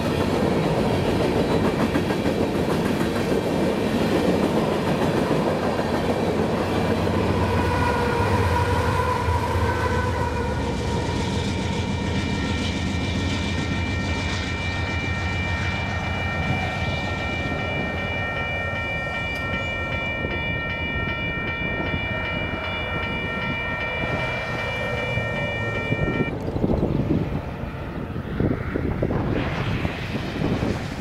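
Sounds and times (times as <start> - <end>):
crossing warning bell ringing: 11.5 - 26.4.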